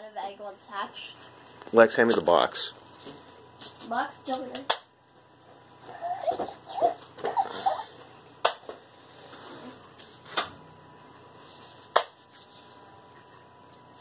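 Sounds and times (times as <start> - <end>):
warbling toy voice sounds: 5.8 - 7.9.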